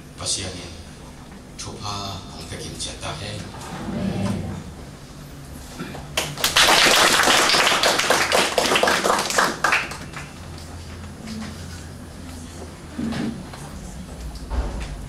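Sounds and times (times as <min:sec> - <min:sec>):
audience applauding: 0:06.1 - 0:10.6.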